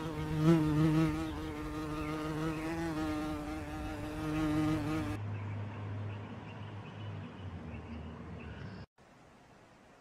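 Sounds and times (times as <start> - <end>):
flying insect buzzing: 0.0 - 5.2.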